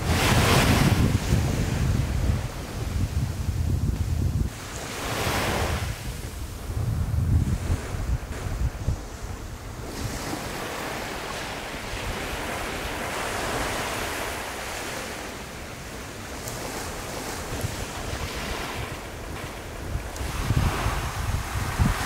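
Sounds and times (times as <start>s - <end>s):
surf washing on shore: 0.0s - 22.0s
wind buffeting microphone: 0.0s - 22.0s.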